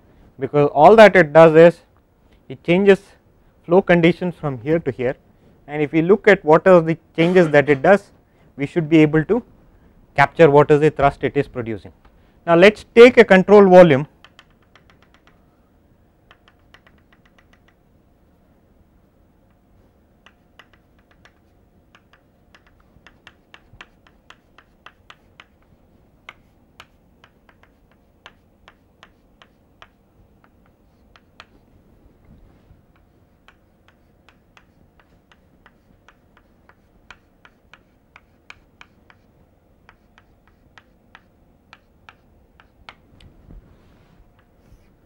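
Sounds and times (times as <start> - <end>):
chalk tapping on blackboard: 14.2 - 15.4, 16.3 - 17.8, 20.2 - 31.7, 32.9 - 43.0.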